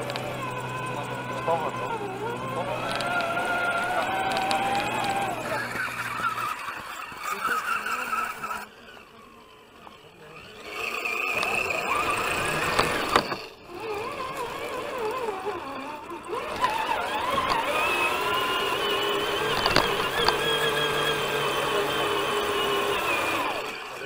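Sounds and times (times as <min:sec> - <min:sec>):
sharp clicks: 0:00.0 - 0:00.4, 0:02.7 - 0:06.4, 0:19.4 - 0:20.5
electric motor and gear whine: 0:00.0 - 0:24.0.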